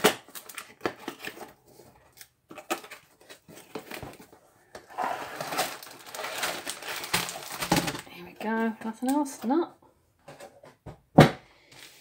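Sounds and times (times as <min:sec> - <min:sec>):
cardboard rustling: 0:00.3 - 0:08.0
cardboard tray scraping out: 0:04.9 - 0:06.4.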